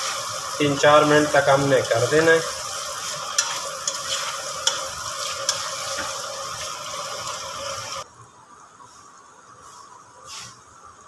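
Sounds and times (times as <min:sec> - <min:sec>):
vegetables sizzling in oil: 0:00.0 - 0:08.1
spatula scraping pot: 0:03.1 - 0:06.8.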